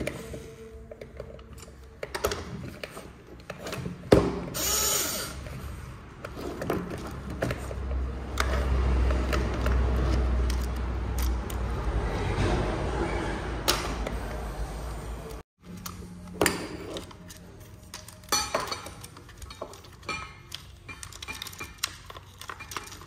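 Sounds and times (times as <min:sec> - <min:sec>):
plastic toy parts clicking and rattling: 0:09.2 - 0:11.7, 0:16.9 - 0:23.0.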